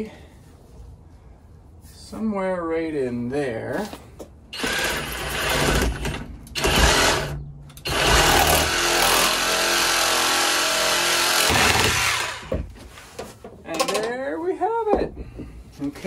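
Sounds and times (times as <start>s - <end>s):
power saw cutting plastic pipe: 4.6s - 12.6s.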